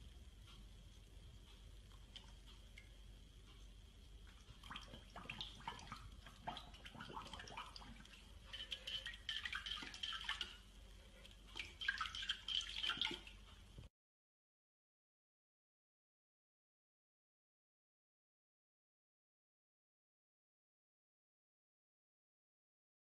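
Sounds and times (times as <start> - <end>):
puppy splashing in water bowl: 4.3 - 13.4.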